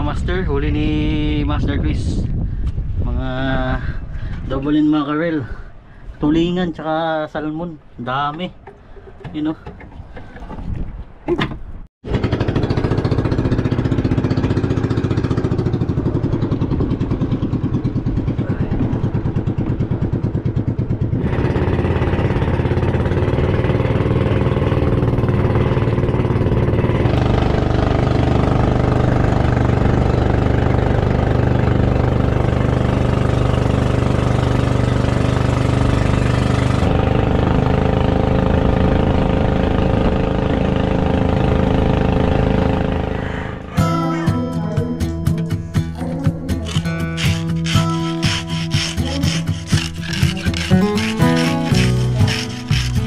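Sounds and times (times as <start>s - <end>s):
boat engine running: 12.0s - 53.0s.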